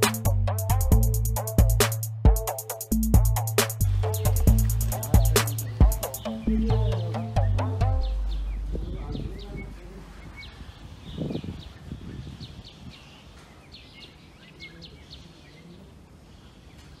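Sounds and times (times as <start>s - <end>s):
high downward-sliding bird chirps: 4.0s - 15.3s
faint background noise: 8.1s - 17.0s.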